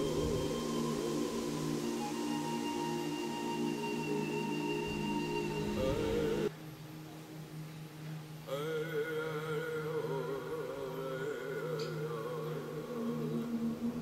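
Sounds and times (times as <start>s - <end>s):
low drone: 0.0s - 6.5s
slow wavering melody: 0.0s - 14.0s.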